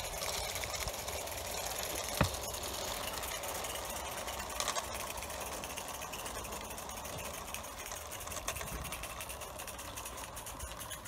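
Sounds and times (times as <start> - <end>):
model steam locomotive chuffing: 0.0 - 11.0.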